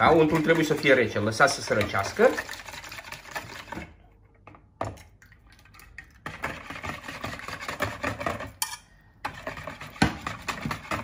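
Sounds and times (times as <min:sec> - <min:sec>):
whisk rattling against bowl: 0:00.0 - 0:03.8, 0:06.2 - 0:08.6, 0:09.2 - 0:11.0.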